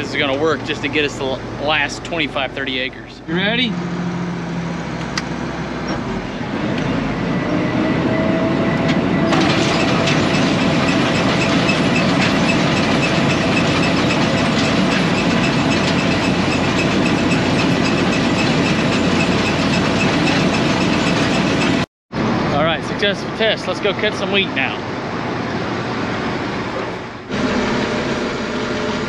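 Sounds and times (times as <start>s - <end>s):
combine machinery whining and clattering: 0.0s - 29.0s.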